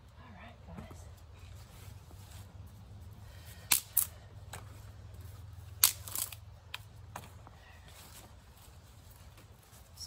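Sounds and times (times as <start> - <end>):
dry twigs snapping: 5.7 - 6.9.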